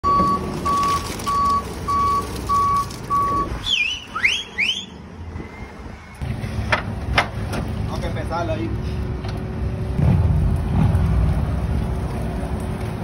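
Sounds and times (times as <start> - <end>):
reversing alarm beeping: 0.0 - 5.0
forklift engine rumble: 0.0 - 13.0
rising whistle-like chirps: 3.6 - 6.2.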